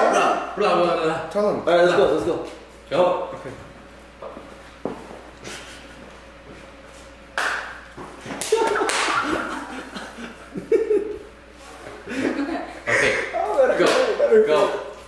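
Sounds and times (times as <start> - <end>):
young men laughing loudly: 8.4 - 11.3, 12.0 - 14.5.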